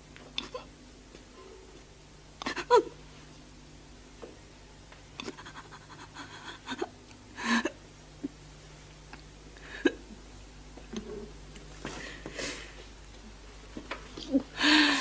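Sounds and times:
woman sobbing: 2.4s - 3.0s, 5.2s - 7.8s, 14.3s - 15.0s.

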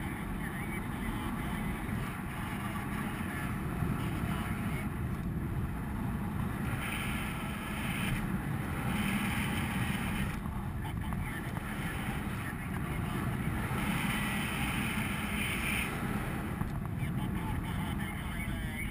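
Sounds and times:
wind rushing over microphone: 0.0s - 18.9s.

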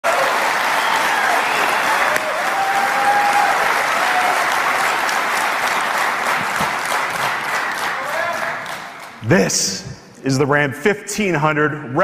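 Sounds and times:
large audience applauding: 0.0s - 9.5s.

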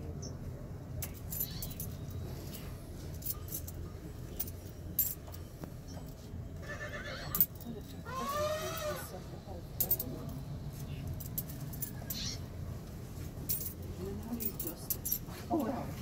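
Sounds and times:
low room hum: 0.0s - 16.0s
light clinks and clicks: 1.0s - 6.3s, 9.8s - 12.3s, 13.5s - 15.8s.

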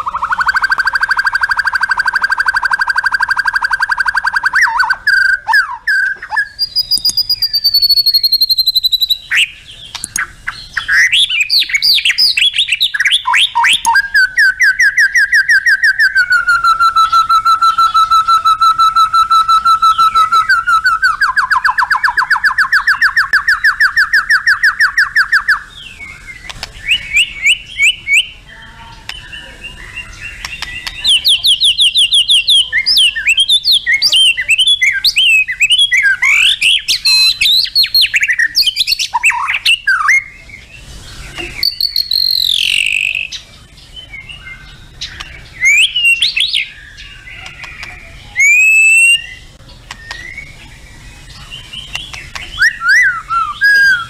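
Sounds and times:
bird singing whistles and trills: 0.0s - 54.0s.

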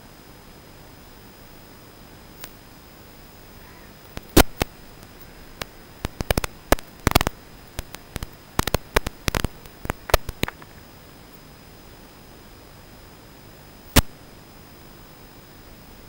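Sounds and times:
static hiss: 0.0s - 16.0s
sharp crackling clicks: 4.1s - 10.9s, 14.0s - 14.2s.

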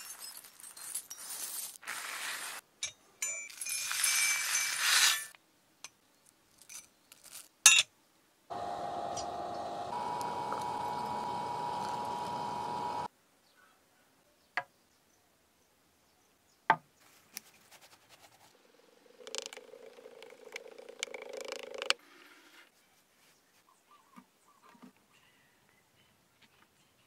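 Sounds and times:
sand rustling and scraping: 1.1s - 2.6s, 3.7s - 5.4s
furnace hissing and humming: 8.5s - 13.1s.

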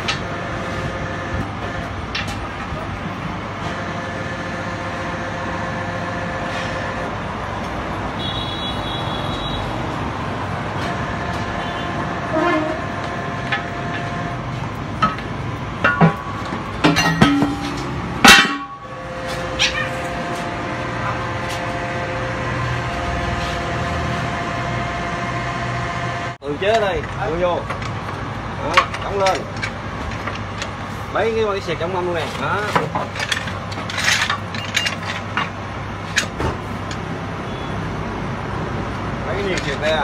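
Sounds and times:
tire press mechanical drone: 0.0s - 40.0s
metal clanks and knocks: 14.9s - 21.7s, 32.2s - 36.6s
hard metal bang: 15.0s - 20.3s.

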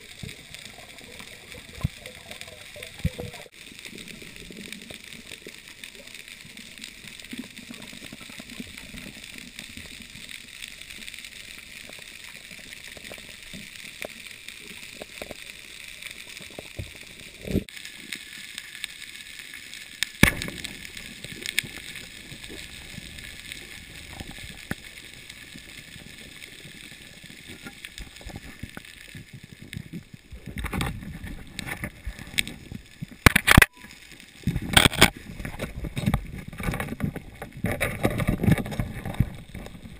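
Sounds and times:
sharp underwater clicks and knocks: 20.0s - 24.9s, 27.4s - 39.9s.

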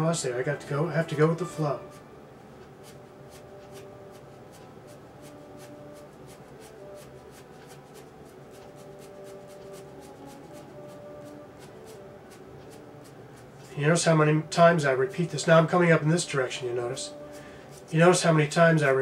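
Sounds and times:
pencil scratching on paper: 2.8s - 13.8s.

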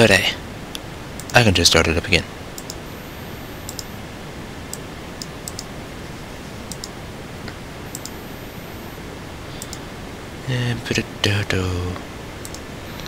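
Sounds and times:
background hiss: 0.0s - 13.0s
mouse button clicks: 7.9s - 8.2s.

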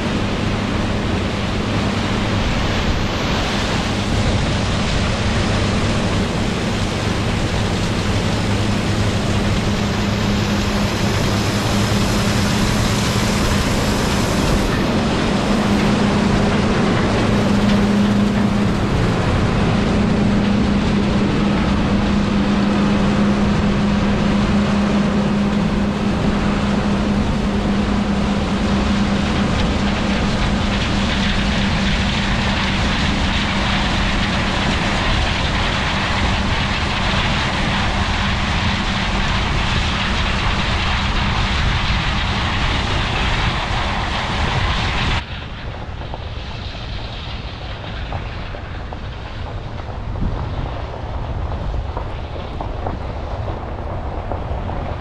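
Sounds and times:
diesel machinery engine drone: 0.0s - 55.0s
mechanical rush: 0.0s - 55.0s.

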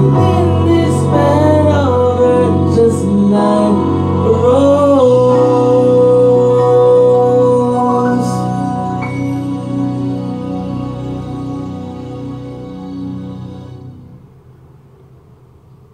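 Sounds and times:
man singing: 0.0s - 10.8s
organ-like keyboard chords: 0.0s - 14.4s.

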